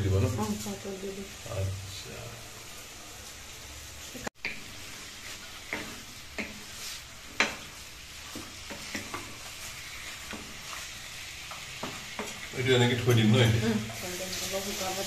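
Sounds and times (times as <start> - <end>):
pork sizzling: 0.0 - 15.0
wooden spatula scraping a wok: 2.7 - 15.0.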